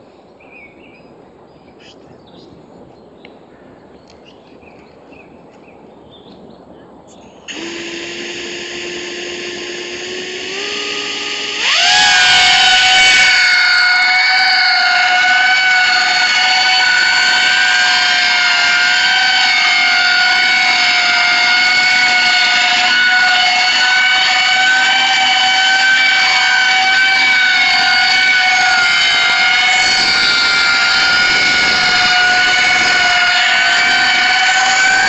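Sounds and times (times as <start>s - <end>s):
propellers whining: 7.5s - 35.0s.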